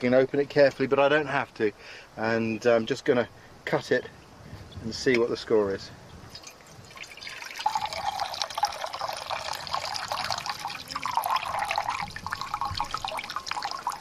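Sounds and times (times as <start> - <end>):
water trickling into a mug: 6.3 - 14.0.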